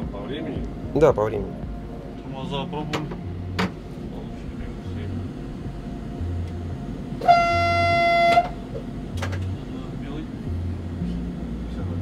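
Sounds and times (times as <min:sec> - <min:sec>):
low pulsing hum: 0:00.0 - 0:12.0
train horn: 0:07.2 - 0:08.6.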